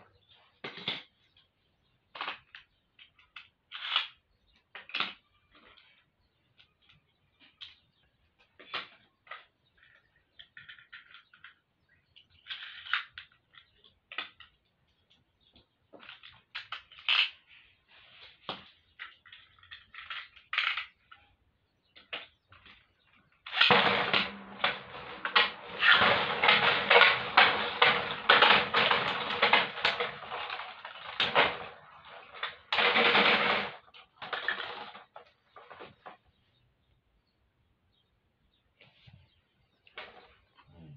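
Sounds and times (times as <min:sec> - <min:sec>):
spinning tops clattering: 0:23.5 - 0:35.7.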